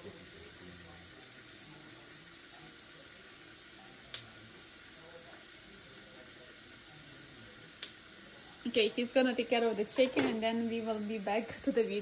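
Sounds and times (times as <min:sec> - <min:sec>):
tap water running into sink: 0:08.7 - 0:12.0.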